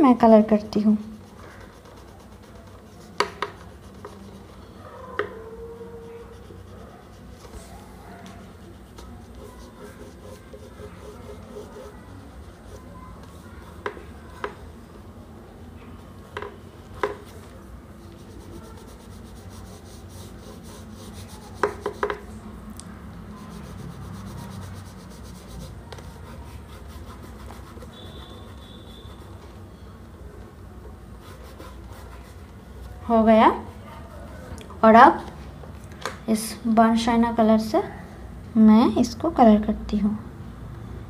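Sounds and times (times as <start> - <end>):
pastel rubbing on paper: 1.0 - 14.5, 17.0 - 22.3, 23.3 - 29.5, 31.2 - 33.0.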